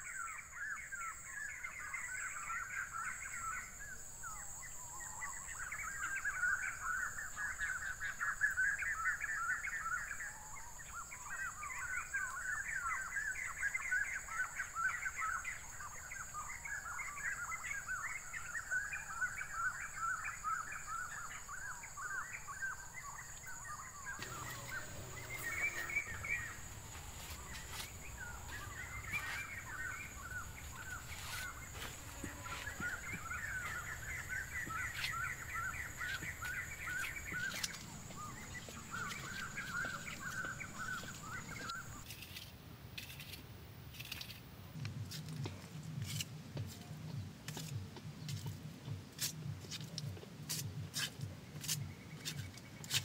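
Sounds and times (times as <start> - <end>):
small birds chirping: 0.0 - 42.2, 46.7 - 53.0
high-pitched whine: 24.2 - 42.0.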